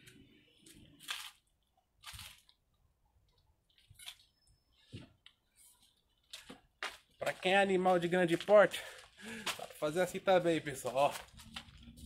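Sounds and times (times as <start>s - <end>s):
faint short breaths: 8.8s - 9.7s.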